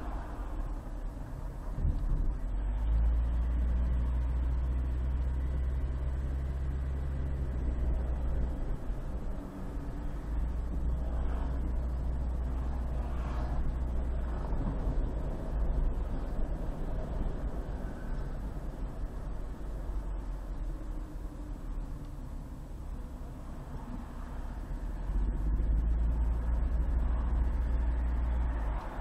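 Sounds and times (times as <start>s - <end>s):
car engine and road noise: 0.0s - 29.0s.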